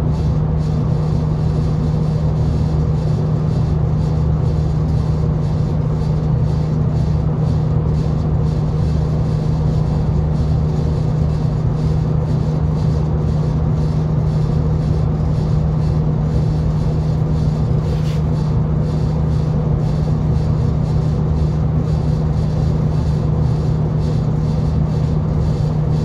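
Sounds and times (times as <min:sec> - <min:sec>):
diesel train engine drone: 0:00.0 - 0:26.0
train running rumble: 0:00.0 - 0:26.0.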